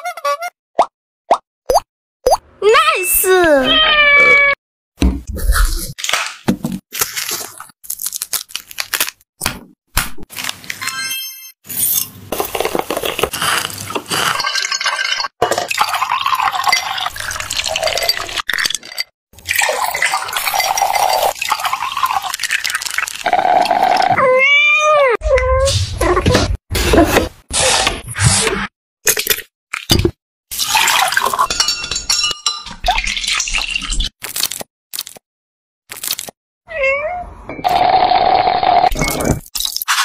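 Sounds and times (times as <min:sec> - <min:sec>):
liquid pouring: 0:13.9 - 0:18.5, 0:19.4 - 0:23.7, 0:30.6 - 0:31.4
ice cubes clinking into glass: 0:14.1 - 0:23.0.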